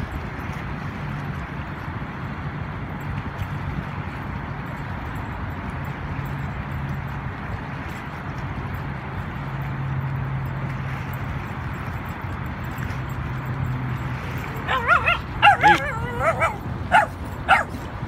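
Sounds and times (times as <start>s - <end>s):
low engine hum: 0.0s - 18.0s
dog yipping and whining: 14.6s - 17.8s.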